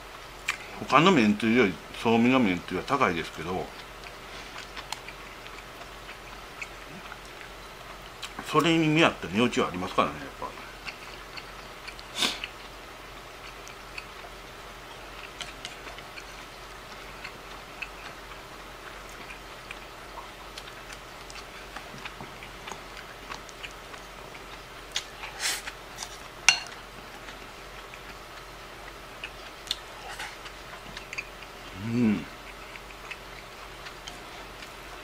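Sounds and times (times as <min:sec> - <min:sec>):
chopsticks tapping ceramic bowl: 0:26.5 - 0:26.8.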